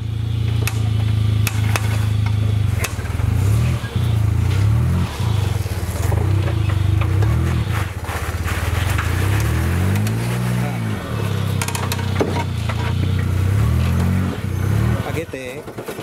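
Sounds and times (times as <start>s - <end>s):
engine revving at low revs: 0.0s - 15.7s
sharp knocks: 0.5s - 3.4s, 11.5s - 13.4s.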